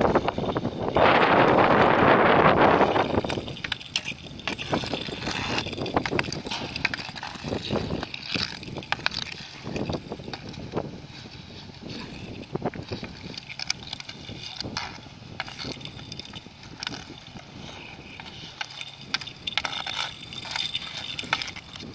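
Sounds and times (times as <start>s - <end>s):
hockey stick knocking puck: 0.0s - 21.9s
skate wheels rolling on asphalt: 0.0s - 21.9s.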